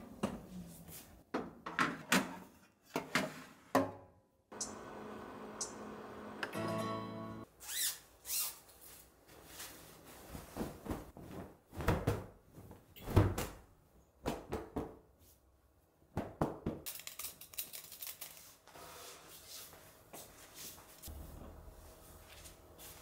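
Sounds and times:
cloth rustling: 8.8s - 12.9s.

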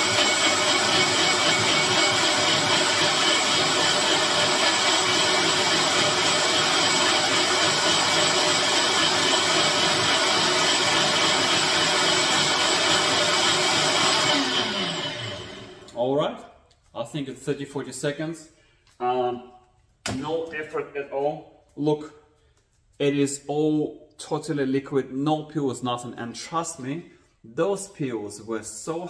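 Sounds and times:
blender running: 0.0s - 16.0s.

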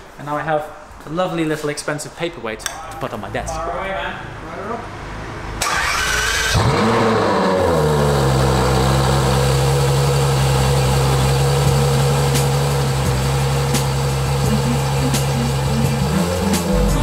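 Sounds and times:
car engine starting and idling: 5.4s - 17.0s.

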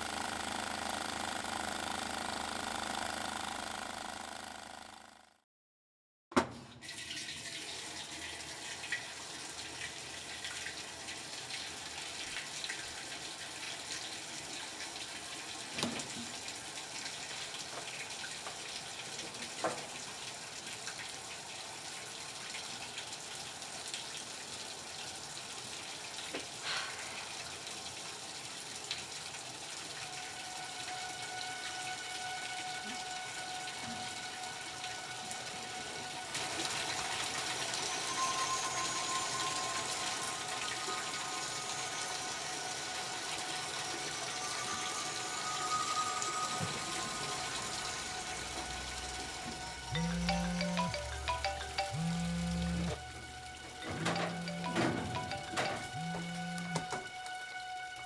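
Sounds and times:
washing machine filling with water: 0.0s - 5.1s, 6.4s - 57.0s
steady tone: 45.8s - 53.0s, 54.2s - 56.8s.

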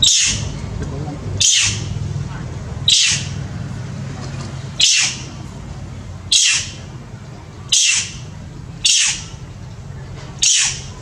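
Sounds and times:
monkey shrieking: 0.0s - 0.5s, 1.4s - 2.0s, 2.9s - 3.4s, 4.8s - 5.3s, 6.3s - 6.8s, 7.7s - 8.2s, 8.8s - 9.4s, 10.4s - 11.0s
steady low hum: 0.0s - 11.0s.

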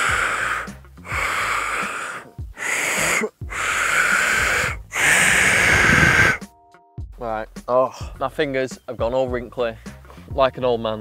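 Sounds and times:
breathy failed whistle blows: 0.0s - 6.4s.

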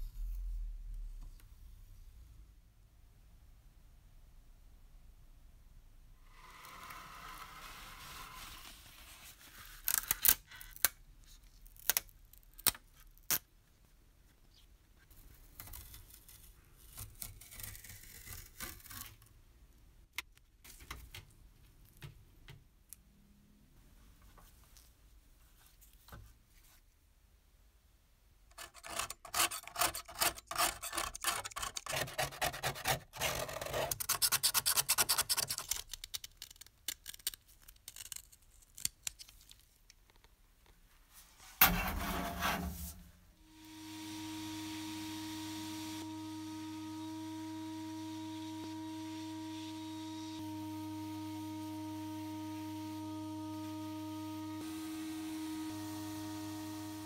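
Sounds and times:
soft rubbing and brushing: 7.6s - 9.8s, 40.9s - 43.3s
blade scraping paint off metal: 28.5s - 35.6s.

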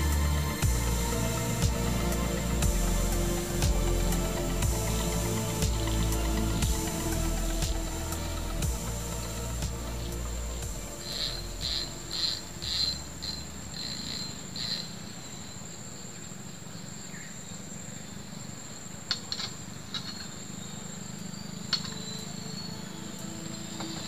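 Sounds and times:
high-pitched insect trill: 0.0s - 16.2s.

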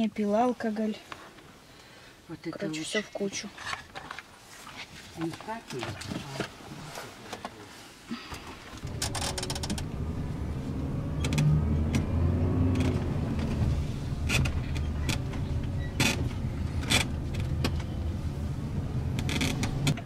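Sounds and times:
van engine and road noise: 2.2s - 20.0s.

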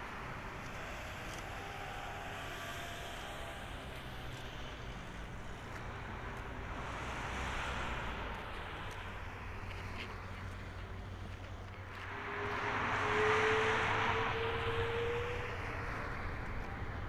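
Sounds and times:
jet engines at taxi thrust: 0.0s - 17.0s.

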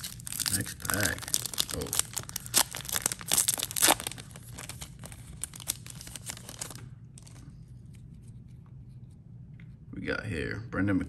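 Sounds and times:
wrapper being torn and crinkled: 0.0s - 7.4s.

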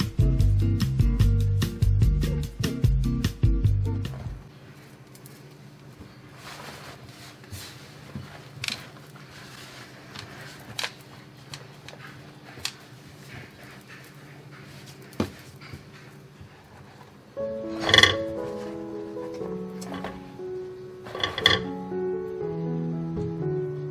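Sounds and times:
towel rustling: 6.0s - 13.9s, 14.6s - 21.5s.

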